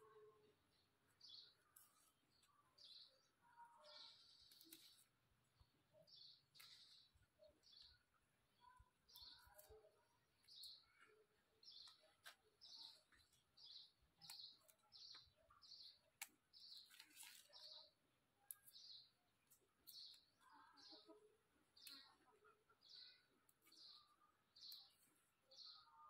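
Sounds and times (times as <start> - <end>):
small bird chirping: 0.0 - 26.0
vegetable stems snapping: 4.4 - 5.1, 6.5 - 7.0, 14.2 - 14.8, 16.2 - 17.6, 21.8 - 22.2.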